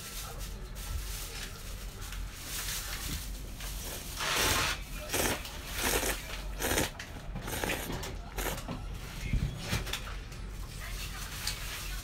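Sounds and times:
noodles being slurped: 4.1s - 8.7s.

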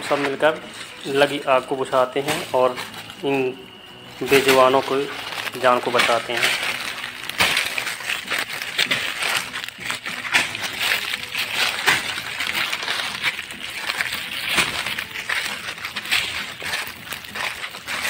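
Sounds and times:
fire crackling in leaves: 0.0s - 18.0s
footsteps crunching dry leaves: 0.0s - 18.0s.

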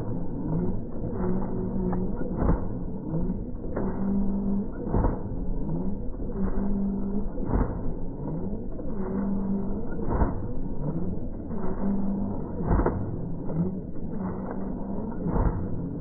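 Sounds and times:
motor and flapping-wing drive hum: 0.0s - 16.0s.

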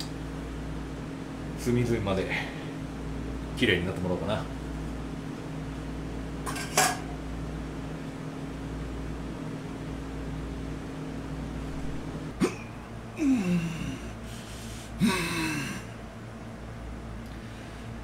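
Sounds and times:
steady hum: 0.0s - 18.0s
man groaning aah: 13.2s - 14.2s, 15.0s - 15.9s.

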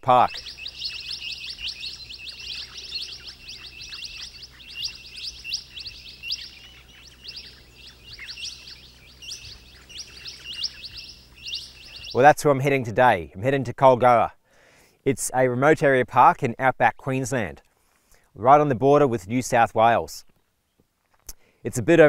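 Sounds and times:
small birds chirping: 0.0s - 12.3s.

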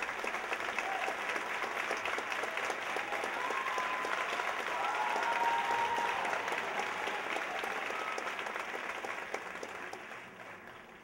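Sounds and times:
audience applauding: 0.0s - 11.0s
people cheering: 0.4s - 9.1s.

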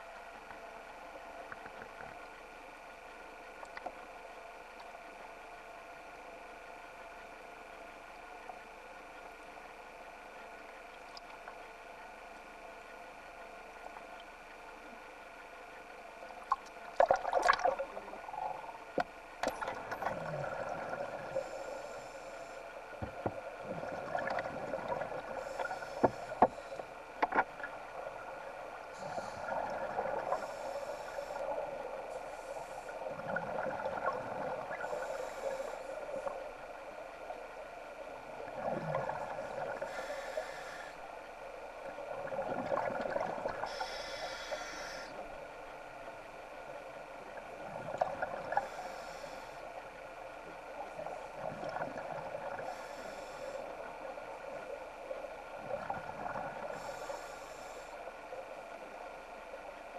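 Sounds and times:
exhaled bubbles underwater: 16.4s - 21.6s, 23.0s - 26.6s, 27.2s - 32.2s, 32.8s - 36.4s, 38.1s - 40.0s, 41.8s - 44.0s, 47.3s - 48.8s, 50.5s - 54.8s, 55.4s - 57.0s.

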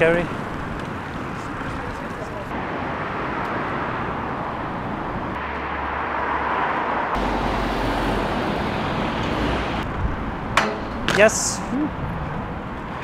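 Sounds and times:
strong wind buffeting microphone: 6.0s - 10.6s.

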